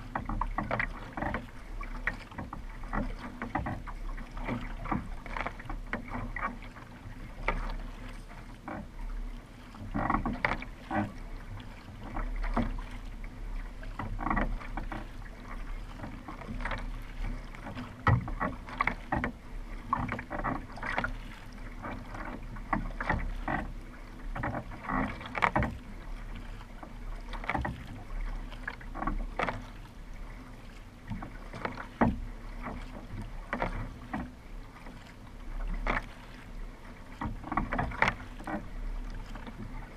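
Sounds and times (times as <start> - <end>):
paddle strokes splashing: 0.0 - 39.9.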